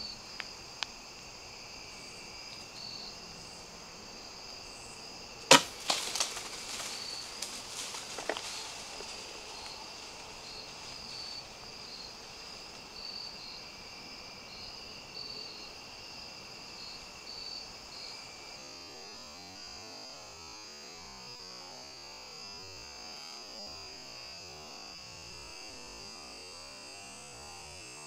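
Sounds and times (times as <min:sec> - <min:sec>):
crickets chirping: 0:00.0 - 0:28.0
bow shot thump: 0:05.5 - 0:08.5
deer running through dry leaves: 0:05.5 - 0:12.8.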